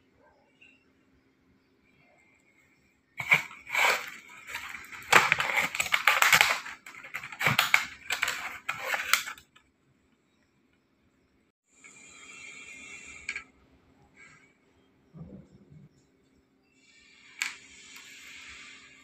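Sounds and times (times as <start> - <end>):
cardboard box crackling and scraping: 3.2 - 9.4.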